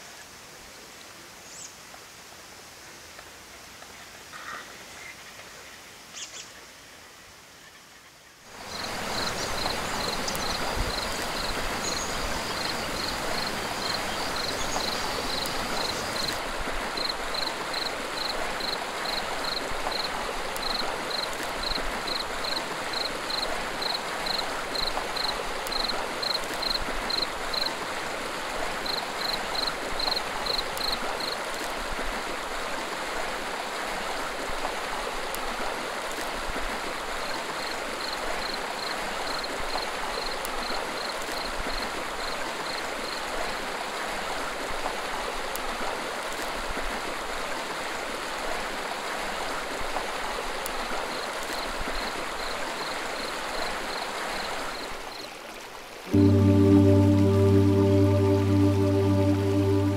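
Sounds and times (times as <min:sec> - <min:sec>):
stream splashing over stones: 0:08.5 - 0:56.2
high chirp: 0:56.1 - 0:59.9.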